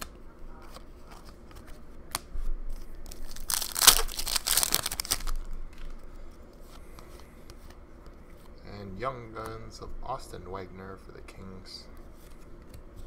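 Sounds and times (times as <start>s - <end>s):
foil wrapper tearing and crinkling: 3.0s - 5.5s.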